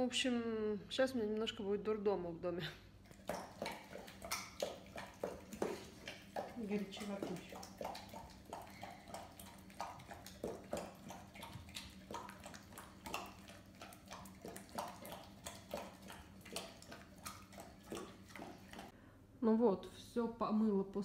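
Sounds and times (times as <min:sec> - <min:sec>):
dog lapping from a plastic bowl: 0:03.0 - 0:18.9.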